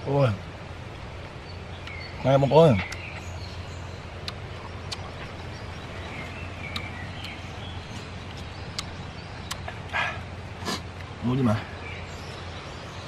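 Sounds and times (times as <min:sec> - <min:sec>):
low background noise: 0:00.0 - 0:13.0
faint bird chirps: 0:01.3 - 0:13.0
sharp clicks: 0:08.3 - 0:09.7.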